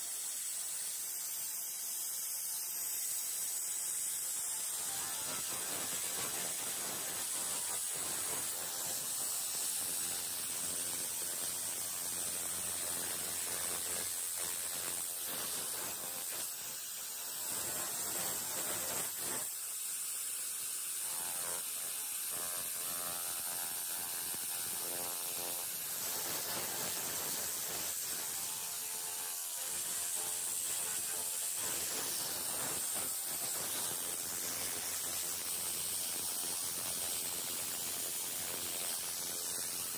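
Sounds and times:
laser cleaner crackling hiss: 0:00.0 - 0:39.9.

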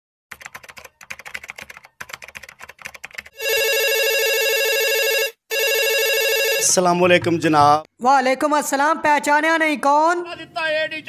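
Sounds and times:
rapid keyboard clicks: 0:00.3 - 0:03.4
warbling electronic phone ring: 0:03.4 - 0:06.8.

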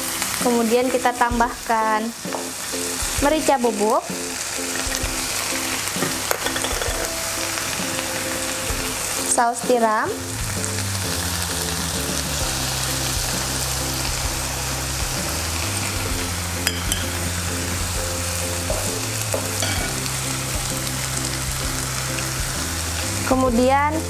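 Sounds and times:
soft background music: 0:00.0 - 0:24.0
vegetables sizzling in oil: 0:00.0 - 0:24.0.

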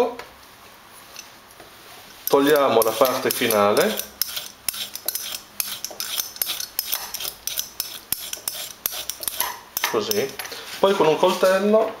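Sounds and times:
vegetable peeler scraping: 0:02.2 - 0:10.4.

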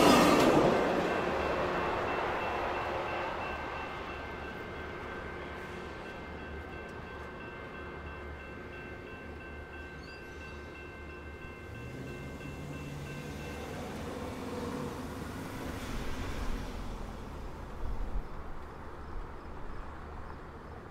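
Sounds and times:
level-crossing bell dinging: 0:00.0 - 0:14.4
train rumbling on rails: 0:00.0 - 0:20.9.

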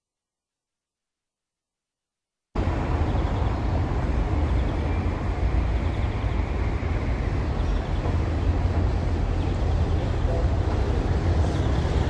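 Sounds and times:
electric tram running rumble: 0:02.6 - 0:12.0.

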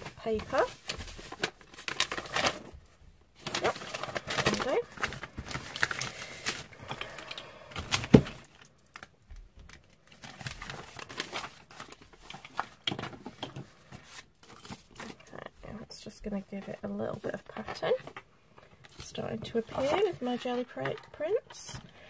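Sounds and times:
paper rustling: 0:00.0 - 0:02.8, 0:03.4 - 0:15.2, 0:18.9 - 0:21.4.

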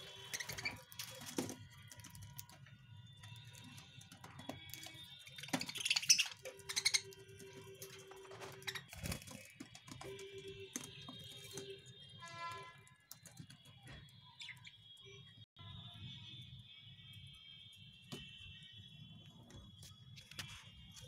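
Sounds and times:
budgerigars chirping: 0:05.4 - 0:07.2.

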